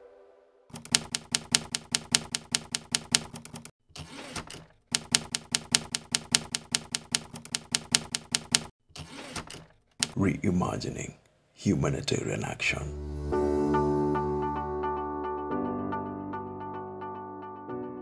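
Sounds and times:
manual typewriter keys striking: 0:00.7 - 0:03.7, 0:04.4 - 0:08.7.

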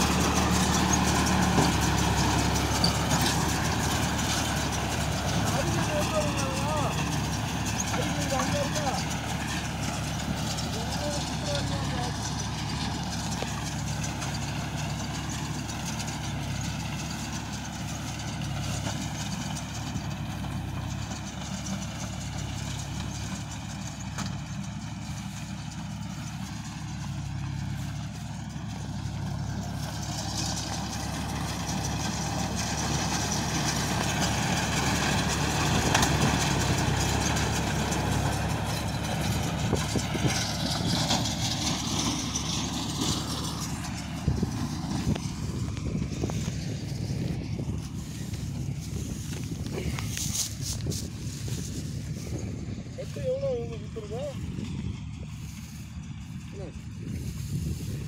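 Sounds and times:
straw baler: 0:00.0 - 0:58.0
tractor diesel engine running: 0:00.0 - 0:58.0.

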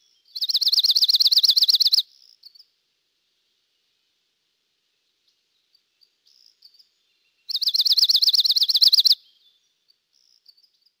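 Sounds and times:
bird singing fast trill: 0:00.0 - 0:02.6, 0:06.0 - 0:11.0
faint high chirps: 0:05.2 - 0:11.0.

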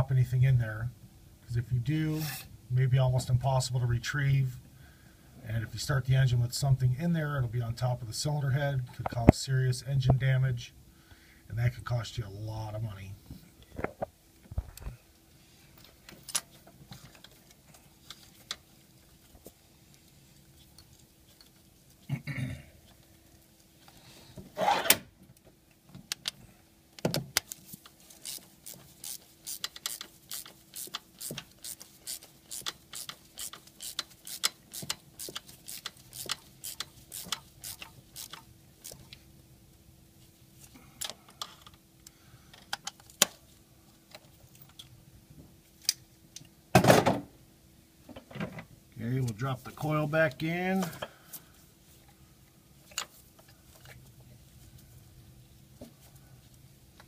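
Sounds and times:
socket ratchet clicking: 0:28.2 - 0:39.1.

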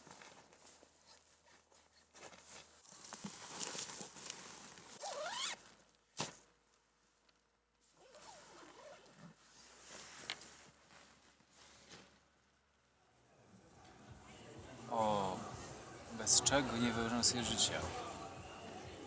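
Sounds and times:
tent fabric rustling: 0:00.0 - 0:12.5
zipper zipping: 0:04.9 - 0:05.6, 0:08.0 - 0:09.8.

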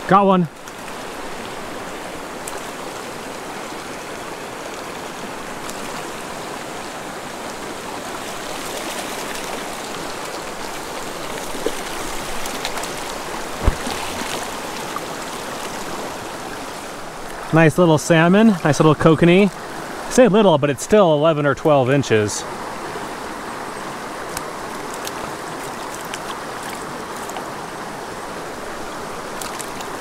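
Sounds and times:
creek rushing over stones: 0:00.0 - 0:30.0
faint splashes: 0:08.3 - 0:17.5.

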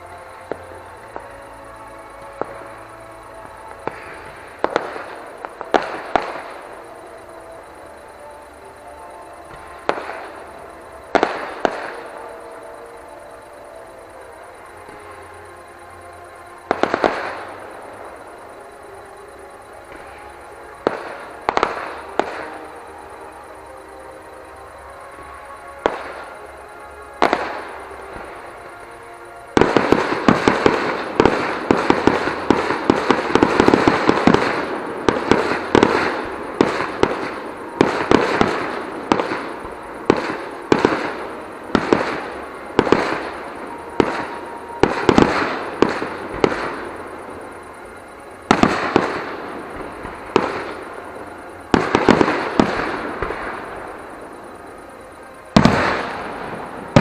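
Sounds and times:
firework crackles: 0:00.0 - 0:57.0
firework shells bursting: 0:55.5 - 0:57.0.

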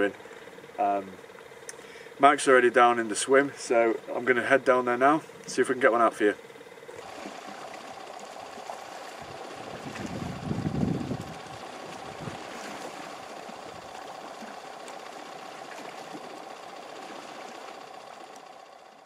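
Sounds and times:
sea washing against rocks: 0:08.8 - 0:13.8.

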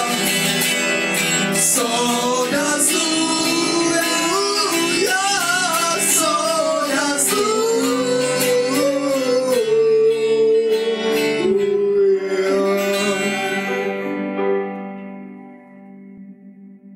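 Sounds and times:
live rock band playing: 0:00.0 - 0:14.7.

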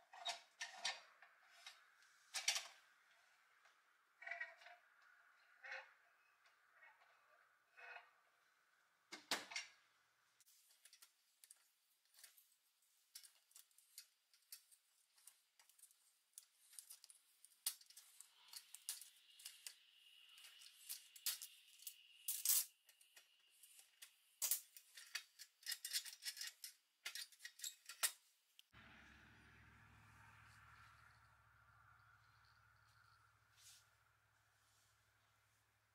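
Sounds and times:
small metal clicks and scrapes: 0:00.0 - 0:06.0, 0:10.4 - 0:28.7
thin scraping squeal: 0:28.8 - 0:35.5.

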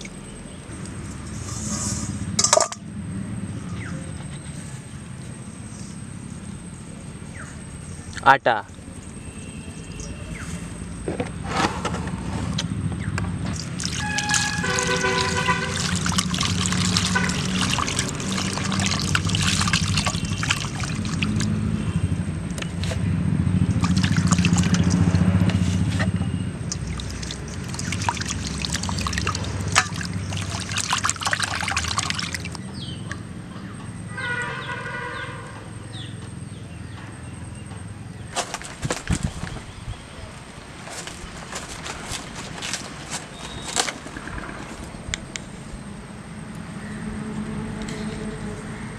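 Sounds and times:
water splashing in metal bowl: 0:13.4 - 0:21.8, 0:23.6 - 0:25.3, 0:26.0 - 0:32.6.

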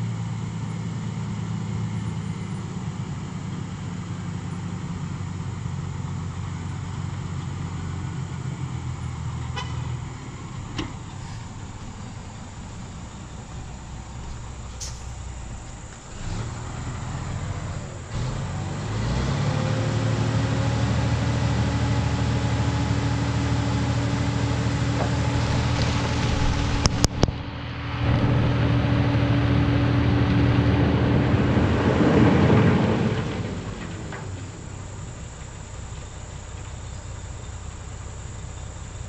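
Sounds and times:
dump truck engine revving: 0:00.0 - 0:39.0
crushed stone sliding out: 0:25.0 - 0:27.3.

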